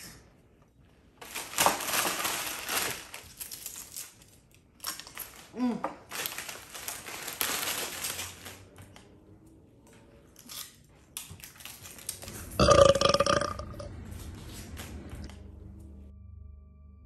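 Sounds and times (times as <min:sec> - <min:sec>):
crunching potato chips: 0:01.2 - 0:08.6
person belching: 0:12.6 - 0:13.9.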